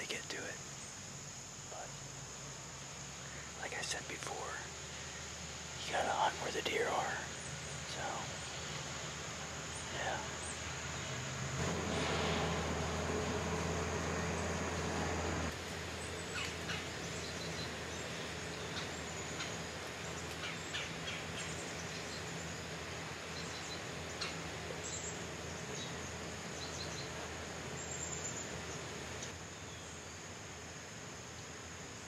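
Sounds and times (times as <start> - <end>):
faint ticks and rustles: 0.0 - 11.2, 15.5 - 22.6
tractor engine hum: 0.0 - 31.8.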